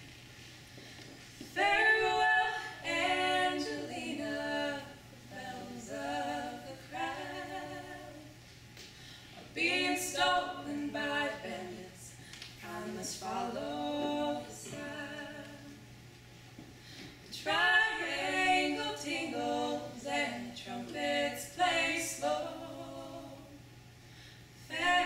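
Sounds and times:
women singing in harmony: 1.5 - 8.4, 9.5 - 15.9, 17.3 - 23.7, 24.7 - 25.0.

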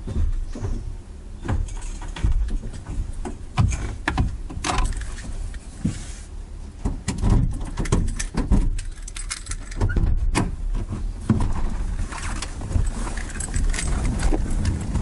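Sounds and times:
car door knocks and clunks: 0.0 - 4.9, 6.8 - 8.8
low rumble: 7.4 - 15.0.

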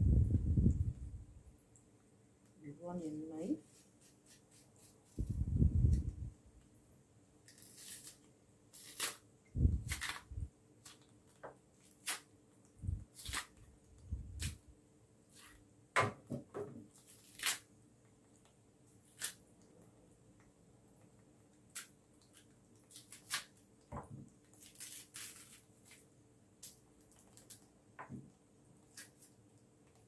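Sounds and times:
knife scraping plantain peel: 7.5 - 9.2, 9.8 - 11.0, 11.8 - 12.3, 13.1 - 13.6, 17.0 - 17.7, 19.1 - 19.4, 21.7 - 23.6, 24.5 - 26.0, 28.9 - 29.3
peel snapping: 17.1 - 17.7.

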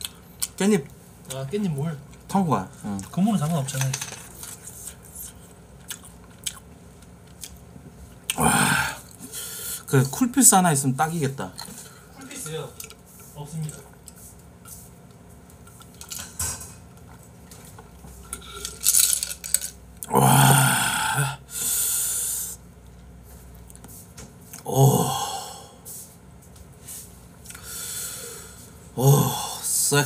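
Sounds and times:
short vocal sound: 24.6 - 25.7.

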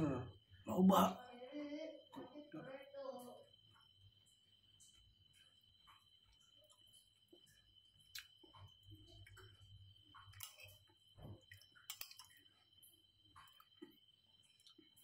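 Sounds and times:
faint chewing: 4.7 - 15.0.

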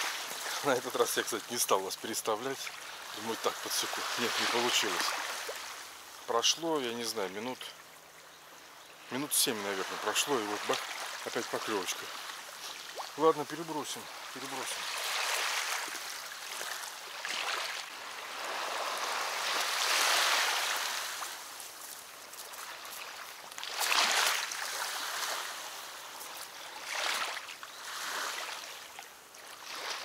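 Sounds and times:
river water lapping against bank: 0.0 - 6.4, 7.1 - 30.0.

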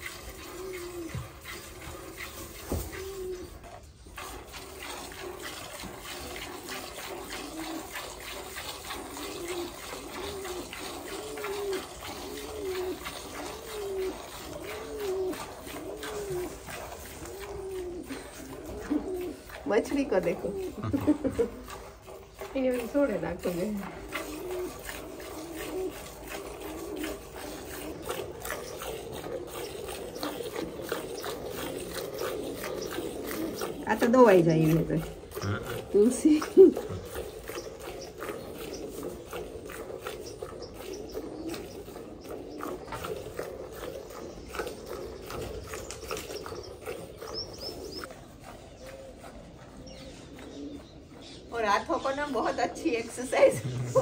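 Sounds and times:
milk squirting into pail: 0.0 - 49.6
bird chirping: 40.0 - 43.1, 43.7 - 54.0.

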